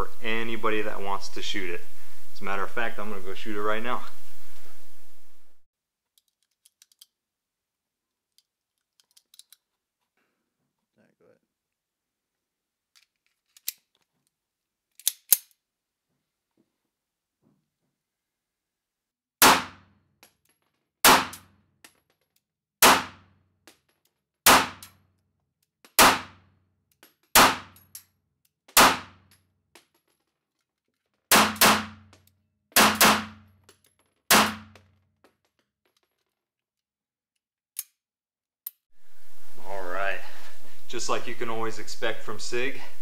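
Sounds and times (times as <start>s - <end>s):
faint small clicks: 6.2s - 7.2s
pistol shots: 19.4s - 19.9s, 21.0s - 21.5s, 22.8s - 23.3s, 24.5s - 24.9s, 26.0s - 26.4s, 27.4s - 27.8s, 28.8s - 29.2s, 31.3s - 32.1s, 32.8s - 33.5s, 34.3s - 34.8s.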